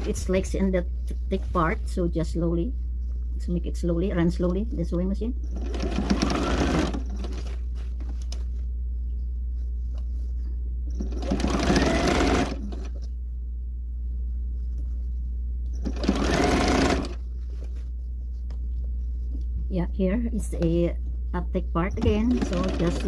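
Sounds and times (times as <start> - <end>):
steady low hum: 0.0 - 23.0
sewing machine stitching: 5.4 - 7.6, 11.0 - 13.0, 15.8 - 17.2, 21.9 - 23.0.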